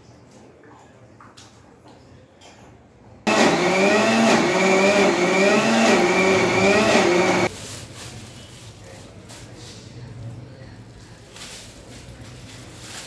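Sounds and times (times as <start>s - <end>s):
electric mixer grinder running: 3.3s - 7.5s.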